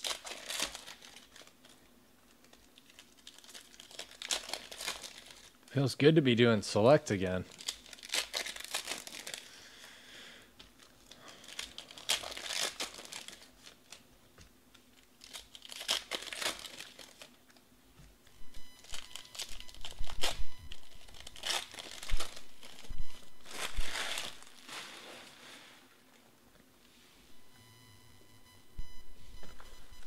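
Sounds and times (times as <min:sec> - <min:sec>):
foil packs crinkling and tearing: 0:00.0 - 0:05.9, 0:07.2 - 0:14.1, 0:14.8 - 0:17.6, 0:18.8 - 0:25.7.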